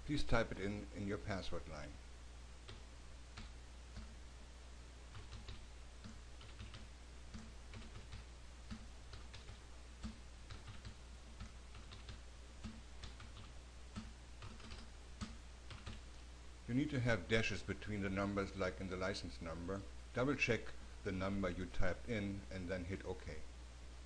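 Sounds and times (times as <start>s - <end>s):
faint low hum: 0.0s - 24.0s.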